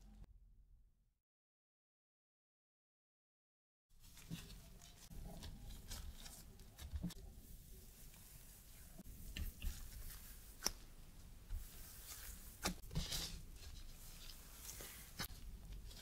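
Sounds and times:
plastic gloves rustling: 4.0s - 16.0s
soft dough handling: 4.0s - 16.0s.

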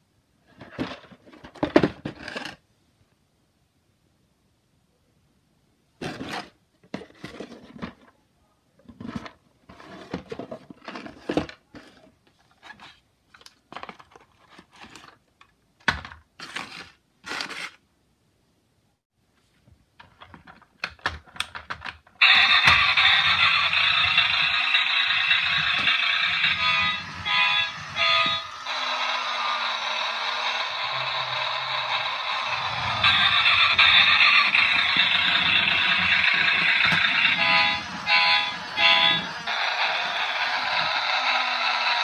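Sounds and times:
electronic toy car sound effect: 22.2s - 42.0s.

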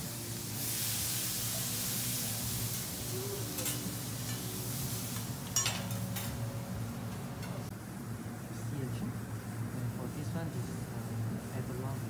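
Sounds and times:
food sizzling on a hot griddle: 0.0s - 6.4s
metal spatula clinking on steel: 5.5s - 6.4s.

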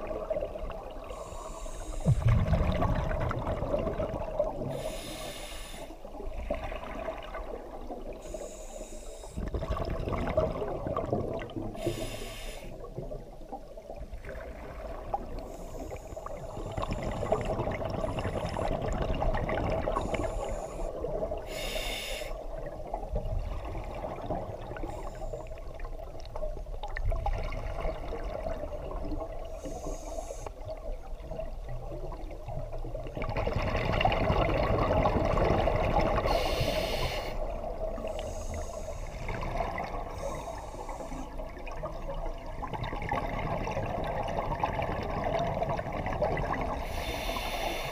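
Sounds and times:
regulator breathing hiss and bubbling: 0.9s - 6.2s, 8.0s - 9.8s, 11.6s - 13.1s, 15.1s - 22.6s, 24.8s - 25.9s, 29.1s - 30.8s, 34.6s - 41.8s, 46.2s - 47.9s.

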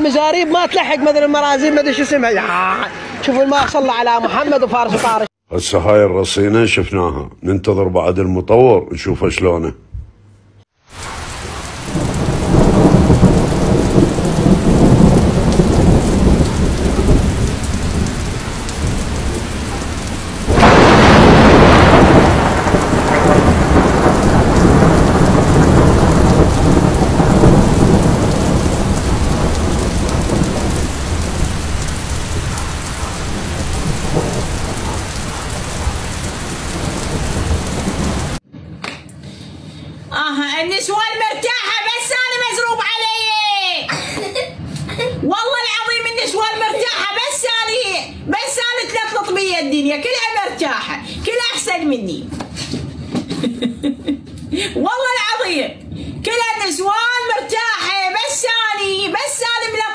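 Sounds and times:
heavy rain: 10.8s - 38.4s
rumbling thunder: 11.0s - 38.4s
sharp thunderclap: 11.0s - 38.4s.

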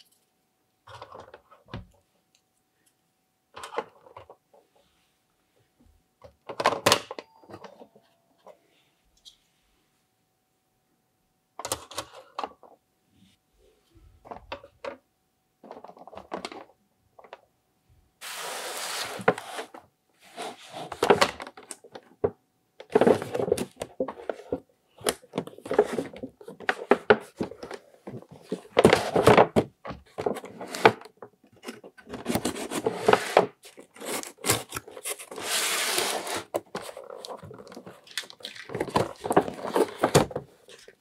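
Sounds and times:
cardboard box scraping: 18.2s - 20.9s, 32.3s - 36.6s
plastic toys clicking and knocking: 36.6s - 41.0s.

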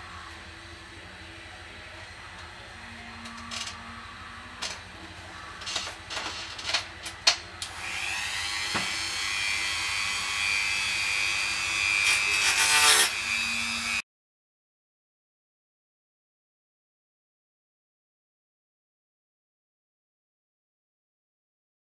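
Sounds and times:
rotary tool whining: 7.6s - 14.0s.

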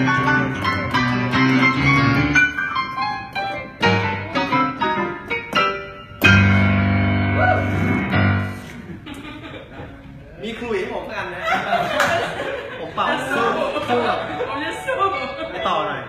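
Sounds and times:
digital piano playing: 0.0s - 8.6s, 13.4s - 16.0s.

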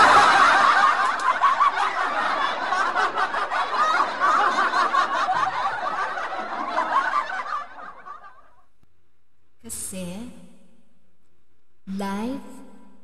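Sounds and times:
people laughing: 0.0s - 8.7s.

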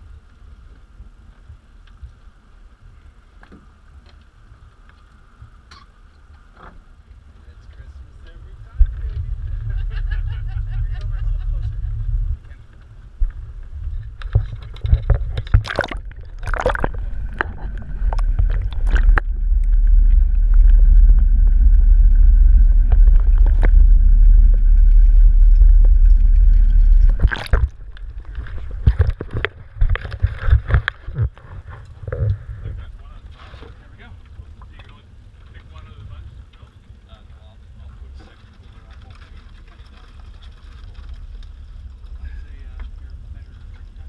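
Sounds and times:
muffled underwater rumble: 0.0s - 44.0s
low rumble: 4.3s - 44.0s
faint high whine: 16.2s - 28.4s.

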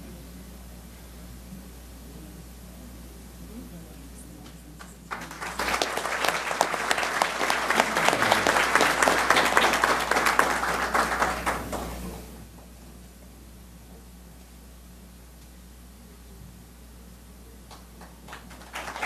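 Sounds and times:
audience applauding: 4.8s - 12.3s, 17.7s - 19.0s.

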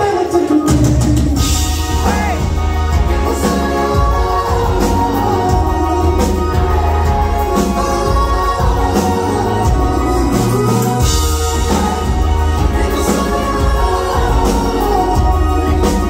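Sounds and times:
person singing: 0.0s - 16.0s
rock band playing loud: 0.0s - 16.0s.

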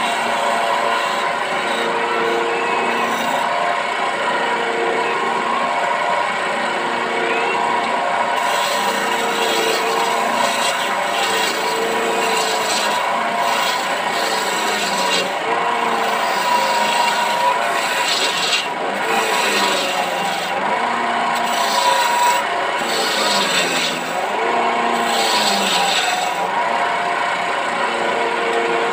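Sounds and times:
lathe motor hum: 0.0s - 28.9s
tool scraping turning wood: 0.0s - 28.9s.

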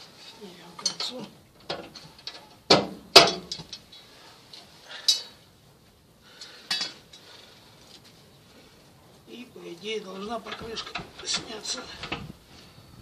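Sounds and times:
metal clanks and clinks: 0.8s - 3.9s.

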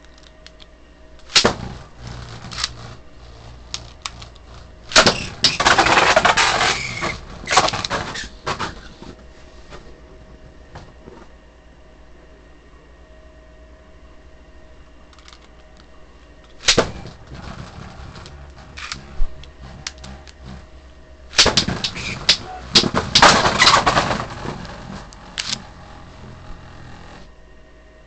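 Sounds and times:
spinning tops scraping and rattling: 1.2s - 8.8s, 16.5s - 25.8s
spinning tops clacking: 21.3s - 25.6s.

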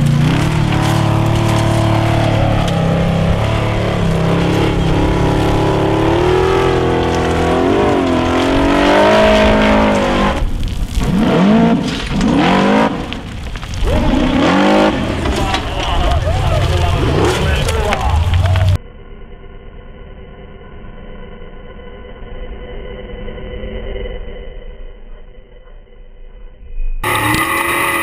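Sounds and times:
buggy engine revving hard: 0.0s - 10.4s, 11.0s - 13.2s, 13.8s - 18.8s, 27.0s - 28.0s.

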